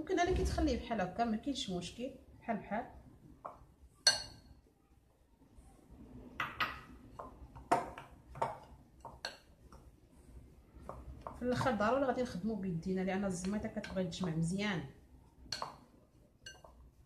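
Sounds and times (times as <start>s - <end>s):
spoon clinking on glass bowl: 4.0s - 4.5s, 16.4s - 16.8s
spoon scraping bowl: 16.4s - 17.0s.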